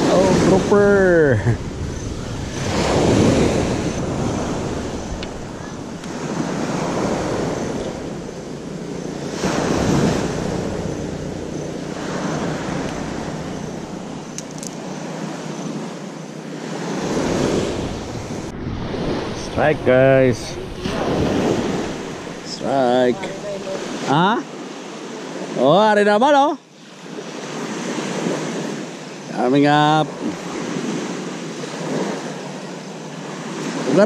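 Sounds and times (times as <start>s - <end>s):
surf washing up gravel beach: 0.0s - 15.9s, 16.5s - 34.0s
wind on microphone: 0.0s - 16.0s, 16.7s - 24.1s.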